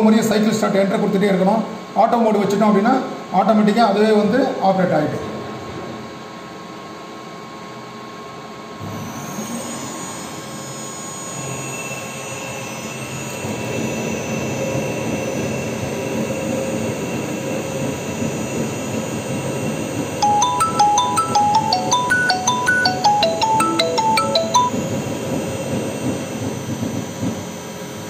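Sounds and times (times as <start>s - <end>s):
music with marimba-like notes: 20.2s - 24.9s.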